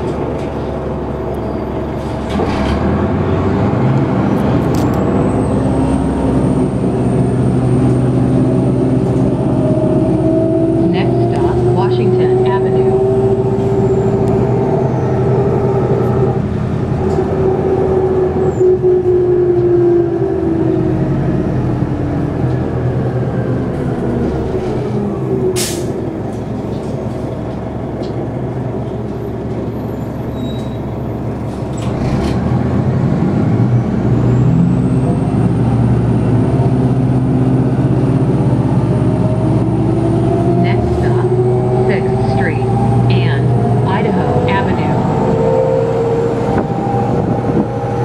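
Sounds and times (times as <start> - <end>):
bus engine drone: 0.0 - 48.0
air brake hiss: 25.6 - 25.9.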